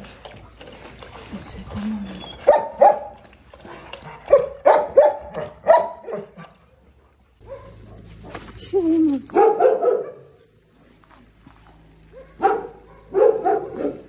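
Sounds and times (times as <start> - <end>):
dog whining: 2.0 - 2.8
dogs barking: 2.4 - 3.3, 4.0 - 6.6, 7.4 - 8.5, 9.3 - 10.4, 12.0 - 14.0.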